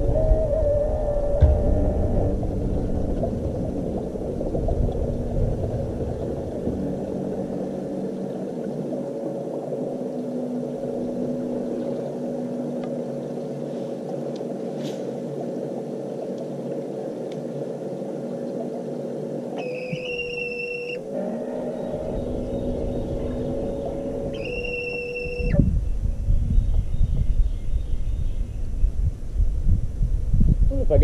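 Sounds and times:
boat motor humming: 0.0 - 27.5
faint ticks: 12.5 - 13.0, 13.8 - 15.6, 16.2 - 17.6.

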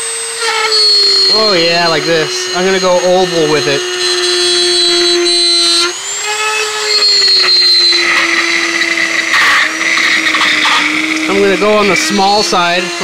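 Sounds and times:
rotary tool whining: 0.0 - 13.0
rough plastic cutting noise: 0.0 - 13.0.

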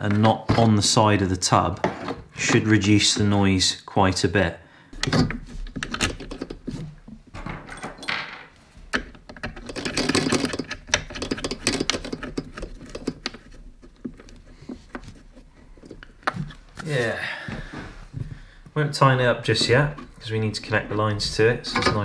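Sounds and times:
rustling of rubber and plastic: 5.0 - 7.4, 8.6 - 22.0.

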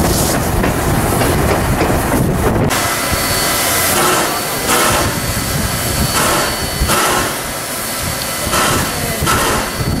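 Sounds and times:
steam locomotive whooshes: 0.0 - 10.0
low rumble: 0.6 - 10.0
faint high whine: 2.8 - 10.0.

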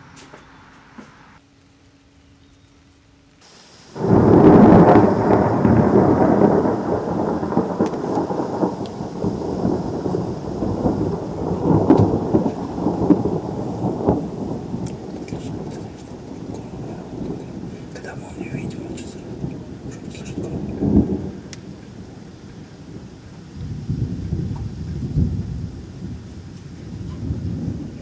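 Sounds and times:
thunder clap and rumble: 3.6 - 28.0.

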